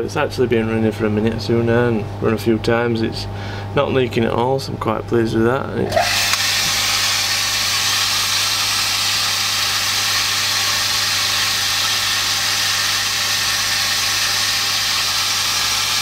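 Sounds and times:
pump motor humming: 0:05.9 - 0:16.0.

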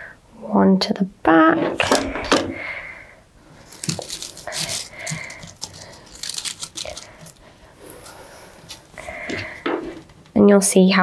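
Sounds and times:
artificial foliage crinkling: 0:03.4 - 0:09.0.

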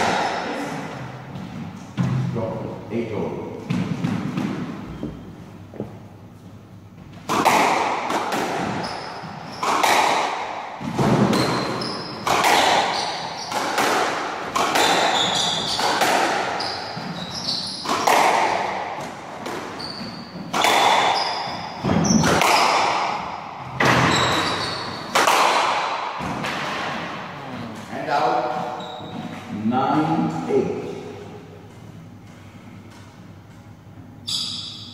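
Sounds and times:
squash ball hitting walls: 0:00.0 - 0:02.3, 0:03.6 - 0:04.9, 0:07.0 - 0:27.2
shoes squeaking on wooden floor: 0:11.2 - 0:12.2, 0:15.1 - 0:15.9, 0:16.6 - 0:18.0, 0:19.7 - 0:22.3, 0:23.8 - 0:25.1, 0:28.6 - 0:29.6.

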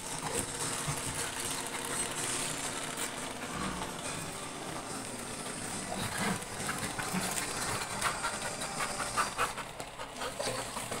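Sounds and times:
dog panting: 0:05.6 - 0:11.0.

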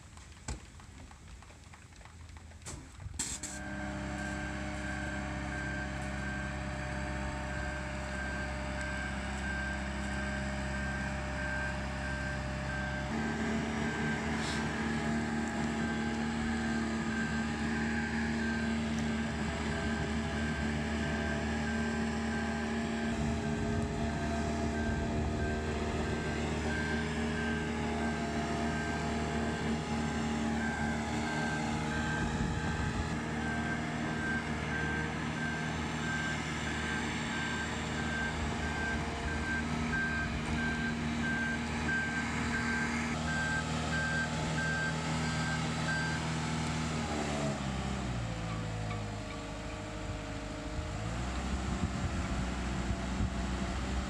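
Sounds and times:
boat hoist engine running: 0:03.4 - 0:44.9
travel alarm beeping: 0:23.2 - 0:27.7.

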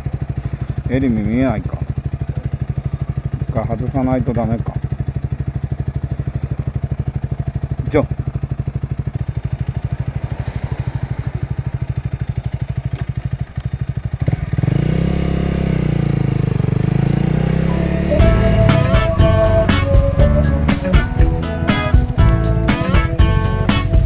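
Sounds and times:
motorcycle engine: 0:00.0 - 0:24.0
guitar music: 0:17.6 - 0:24.0.

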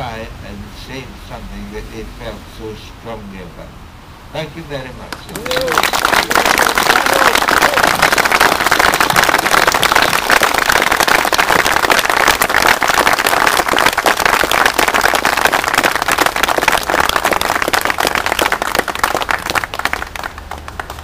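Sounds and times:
crowd applauding: 0:05.2 - 0:21.0.

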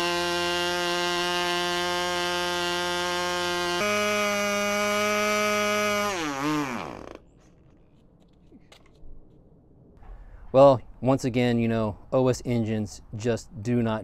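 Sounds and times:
small glow engine running: 0:00.0 - 0:07.2.

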